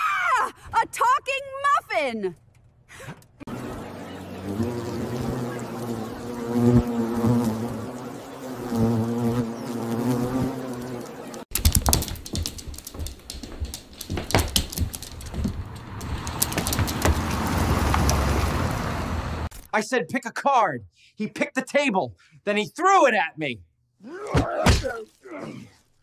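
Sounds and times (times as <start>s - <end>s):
low vehicle engine rumble: 3.5s - 6.5s, 14.8s - 19.5s
bumblebee buzzing: 3.5s - 11.5s
sharp clicks and taps: 11.5s - 18.2s.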